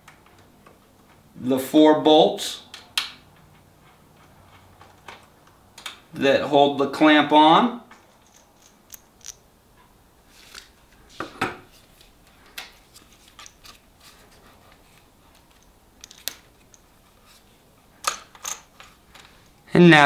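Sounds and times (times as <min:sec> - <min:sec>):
metal clicks and clinks: 0:07.9 - 0:09.5, 0:15.4 - 0:16.9, 0:18.0 - 0:18.9.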